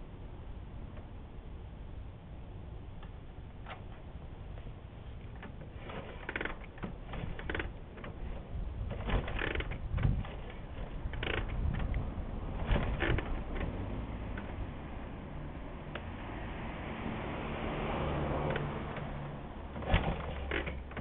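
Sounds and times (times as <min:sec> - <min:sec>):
motorcycle kick-starter clacks: 0:03.0 - 0:14.6, 0:18.4 - 0:21.0.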